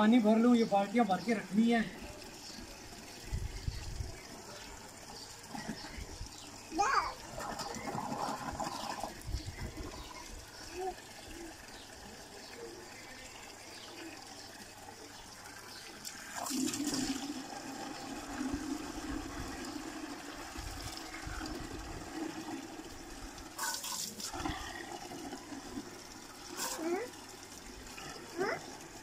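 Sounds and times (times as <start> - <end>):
hose water pouring into bucket: 0.3 - 29.0.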